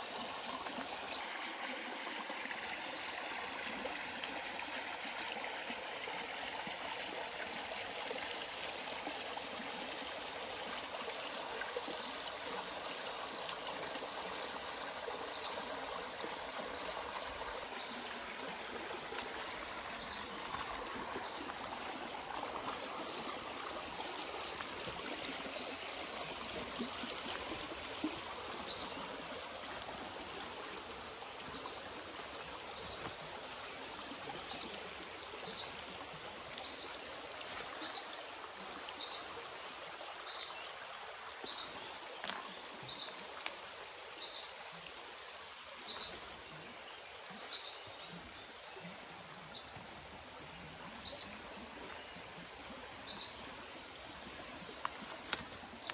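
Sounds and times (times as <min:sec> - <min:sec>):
brook trickling over stones: 0:00.0 - 0:55.9.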